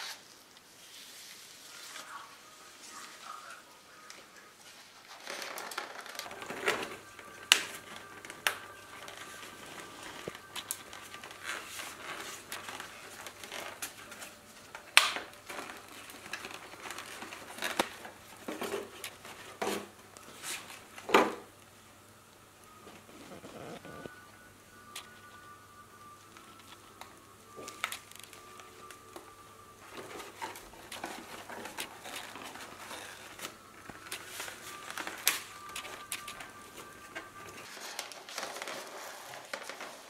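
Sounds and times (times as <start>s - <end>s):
plastic container crinkling: 5.1s - 21.5s.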